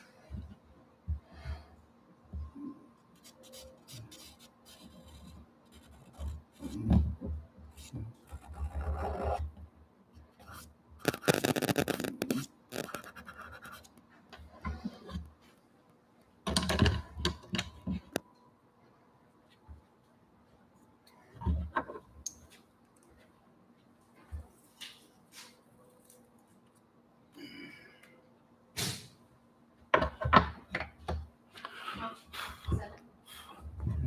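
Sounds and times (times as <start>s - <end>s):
pastel scratching on paper: 10.5s - 13.8s.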